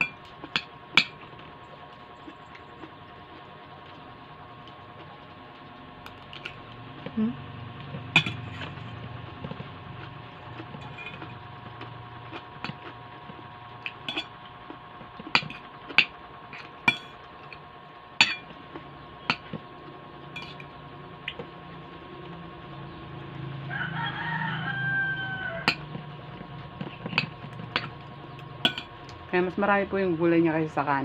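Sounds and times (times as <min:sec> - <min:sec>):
cutlery clinking on ceramic bowl: 0:14.1 - 0:14.3, 0:20.4 - 0:20.7, 0:28.7 - 0:28.9.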